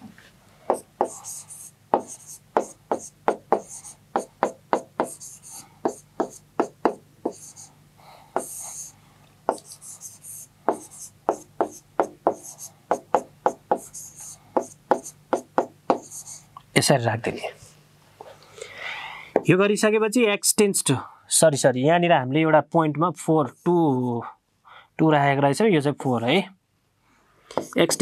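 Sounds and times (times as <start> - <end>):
pen tapping on board: 0.7 - 7.5, 8.4 - 8.7, 9.5 - 10.0, 10.7 - 16.2, 27.5 - 28.0
pen scratching strokes: 0.7 - 7.7, 8.3 - 16.4, 27.6 - 28.0.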